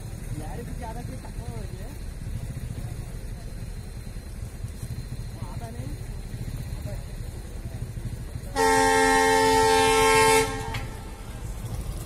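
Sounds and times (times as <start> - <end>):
low steady rumble: 0.0 - 12.0
train horn blast: 8.5 - 11.2.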